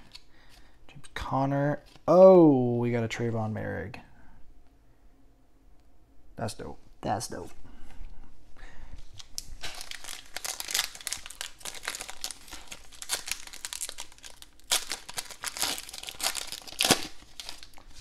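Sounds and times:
plastic wrapper crackling: 9.0 - 18.0.

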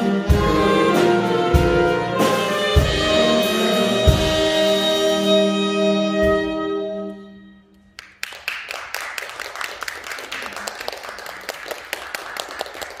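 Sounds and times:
saxophone ensemble chord: 0.0 - 7.8
scattered clapping: 8.0 - 13.0.

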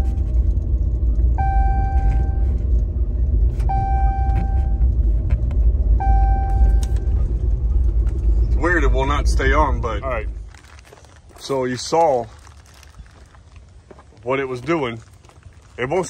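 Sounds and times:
dashboard warning chime: 0.0 - 0.3, 1.4 - 2.6, 3.6 - 5.0, 6.0 - 7.2
road and engine rumble: 0.0 - 16.0.

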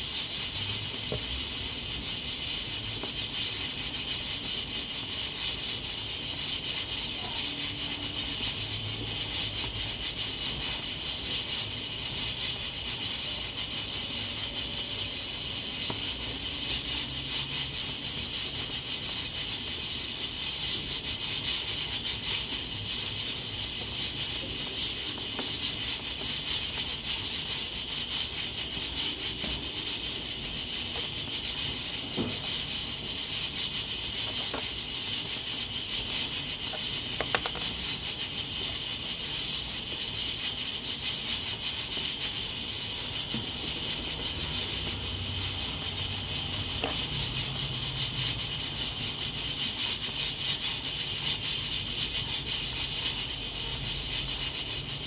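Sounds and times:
pressure cooker hissing: 0.0 - 55.0.

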